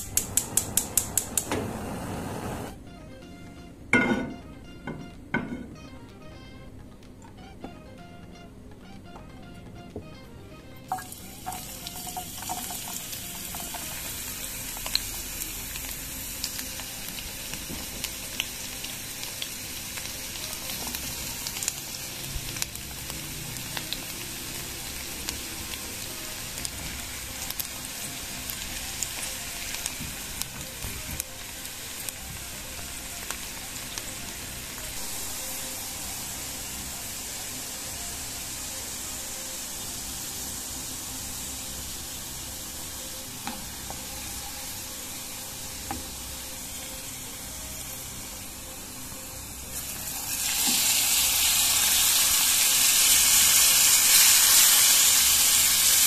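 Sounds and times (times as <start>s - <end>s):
crackles and pops of frying: 0.0s - 1.7s, 10.9s - 46.6s, 49.7s - 56.0s
onion sizzling in hot oil: 0.0s - 2.7s, 10.9s - 56.0s.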